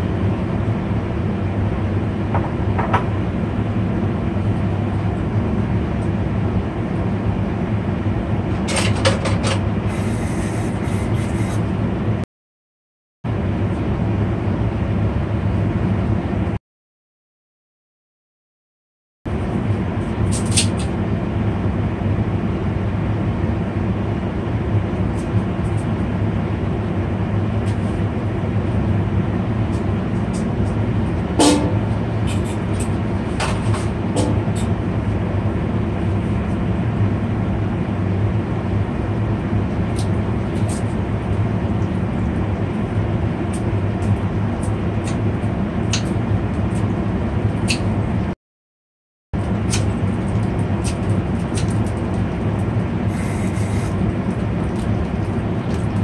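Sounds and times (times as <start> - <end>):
steady low hum: 0.0 - 12.2, 13.3 - 16.6, 19.3 - 48.4, 49.4 - 56.0
oil ticking and popping in pan: 49.4 - 52.9, 53.9 - 56.0.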